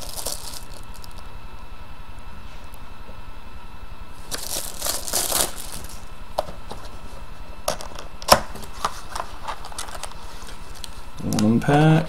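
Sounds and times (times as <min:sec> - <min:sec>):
wrapping crinkling and tearing: 0:00.0 - 0:01.3, 0:04.2 - 0:06.1, 0:08.5 - 0:12.0.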